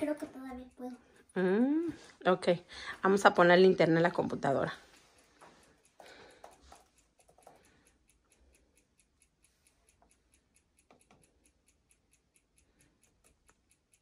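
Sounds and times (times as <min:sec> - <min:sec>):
faint rapid ticking: 0:00.0 - 0:14.0.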